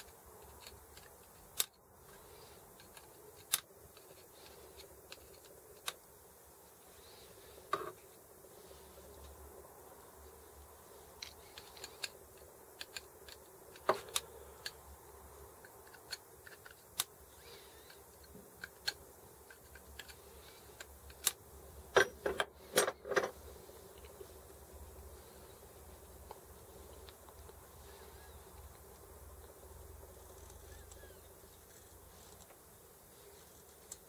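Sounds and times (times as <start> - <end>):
small metal parts clicking: 0.0 - 6.0, 11.2 - 14.9, 15.6 - 23.4.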